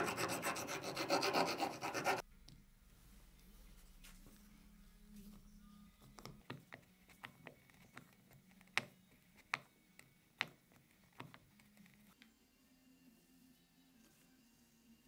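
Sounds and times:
faint low hum: 1.8s - 10.4s.

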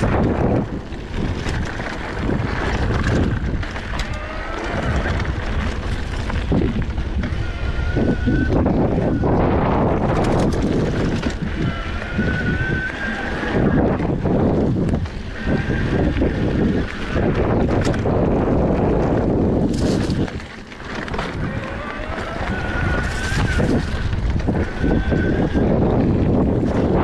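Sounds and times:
bike tyres rattling on dirt: 0.0s - 27.0s
wind buffeting microphone: 0.0s - 27.0s.

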